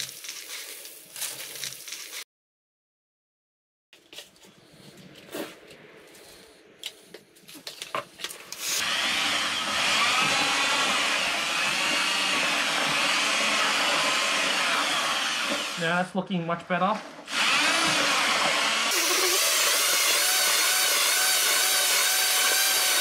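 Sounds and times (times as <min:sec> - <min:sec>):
electric paddle mixer churning: 0:08.8 - 0:16.0, 0:17.2 - 0:23.0.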